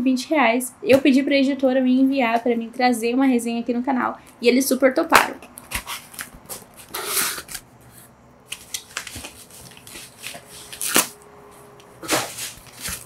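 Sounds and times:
wrapping paper rustling: 0:05.5 - 0:07.6, 0:08.5 - 0:11.2, 0:12.0 - 0:13.0
loud paper crackle: 0:08.5 - 0:11.2, 0:12.0 - 0:13.0.

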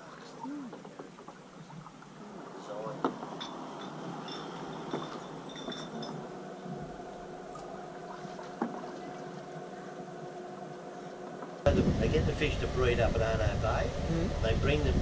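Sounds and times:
water lapping against boat: 0:00.0 - 0:11.6
faint motor hum: 0:00.0 - 0:15.0.

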